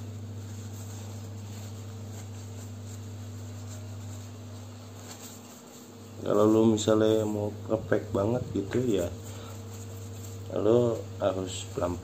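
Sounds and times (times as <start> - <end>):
steady low hum: 0.0 - 12.0
tissue rubbing on glass: 0.0 - 12.0.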